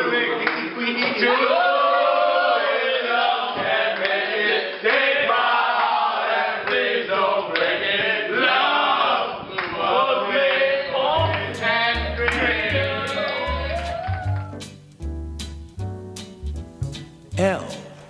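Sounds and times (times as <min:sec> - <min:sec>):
men singing in chorus: 0:01.0 - 0:13.7
recorded music with bass line: 0:11.2 - 0:18.0.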